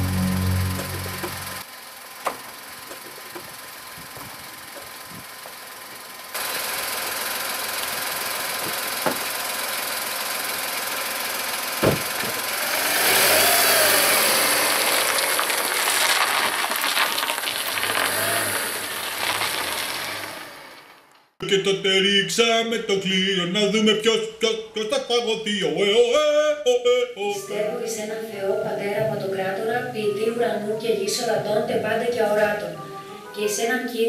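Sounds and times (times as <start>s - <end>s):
car engine revving: 0.0s - 1.6s, 12.3s - 20.9s
car door slamming: 11.8s - 12.4s.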